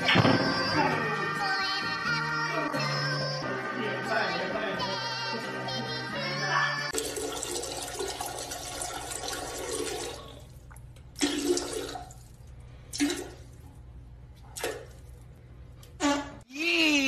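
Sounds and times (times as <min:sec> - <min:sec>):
toilet flushing: 0:06.9 - 0:13.6.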